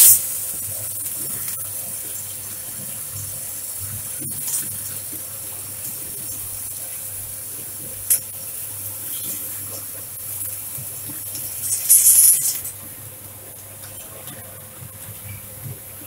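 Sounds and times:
coffee beans pouring into hopper: 0.0 - 1.6, 10.9 - 12.7.

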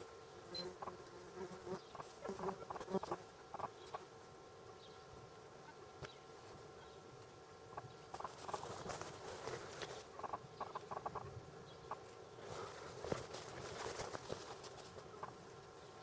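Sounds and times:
footsteps through tall grass: 8.2 - 10.1.

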